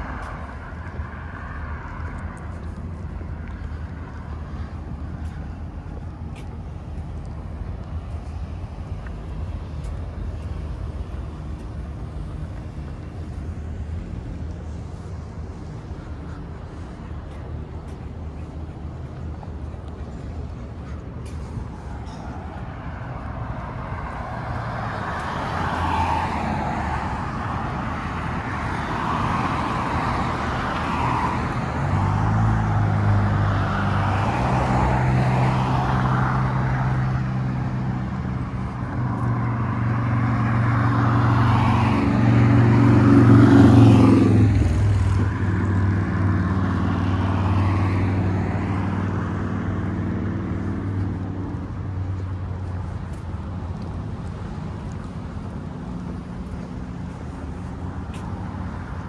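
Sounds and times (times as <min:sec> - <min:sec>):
vehicle engine passing by: 0:21.4 - 0:53.0.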